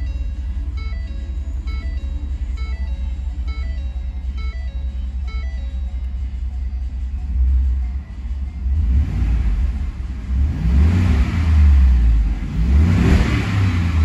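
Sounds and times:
truck engine revving: 7.0s - 14.0s.

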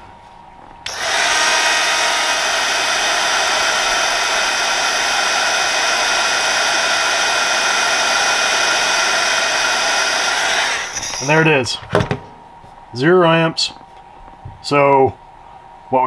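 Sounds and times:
heat gun blowing: 0.8s - 11.5s.

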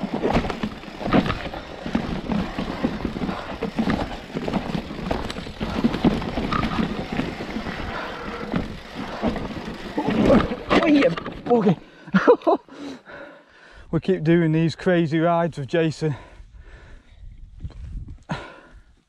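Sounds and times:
mountain bike clattering over rocks: 0.0s - 11.8s
wind rumbling on microphone: 16.5s - 19.0s.

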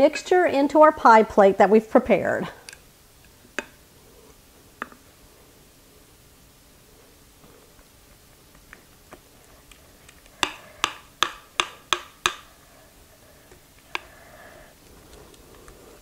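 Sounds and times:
spatula tapping mixing bowl: 10.4s - 12.5s.

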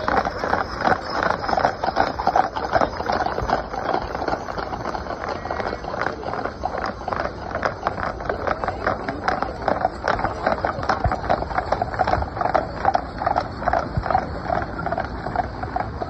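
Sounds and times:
hoofbeats on wet pavement: 0.0s - 16.0s.

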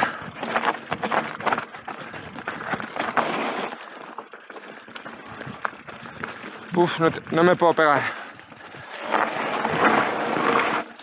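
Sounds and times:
bike rattling and clicking: 0.0s - 11.0s
tyres crunching over dirt: 0.0s - 11.0s.

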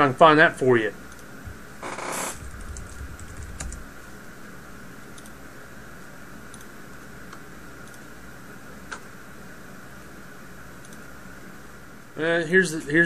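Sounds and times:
typing on computer keyboard: 2.6s - 3.9s
faint clicks: 10.8s - 11.1s.

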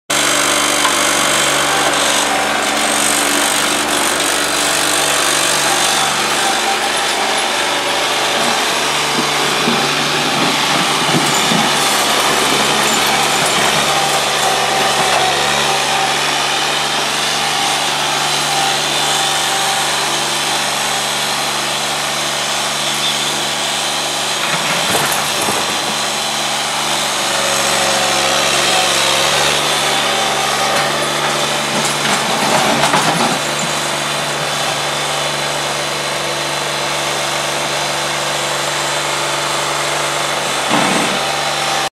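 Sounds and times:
diesel loader engine running: 0.1s - 41.9s
loader moving soil and rocks: 0.2s - 22.8s, 23.4s - 41.9s.

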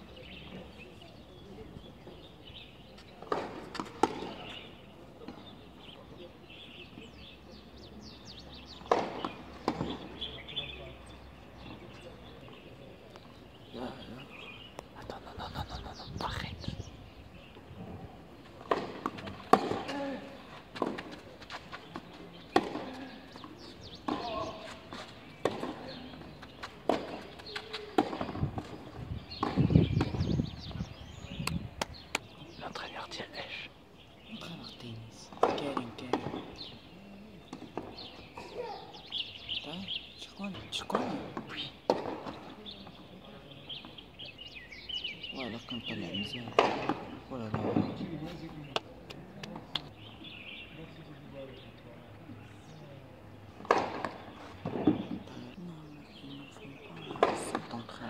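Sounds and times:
birds chirping: 0.0s - 58.0s
tennis balls struck by rackets: 3.1s - 5.6s, 8.0s - 10.9s, 18.3s - 30.4s, 35.3s - 38.4s, 40.9s - 44.1s, 46.4s - 49.9s, 53.5s - 55.3s, 57.0s - 57.8s.

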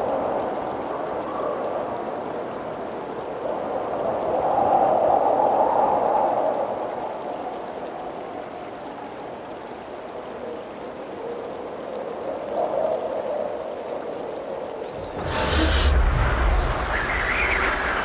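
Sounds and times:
flowing river water: 0.0s - 18.0s
loud whoosh with deep rumble: 14.8s - 18.0s.

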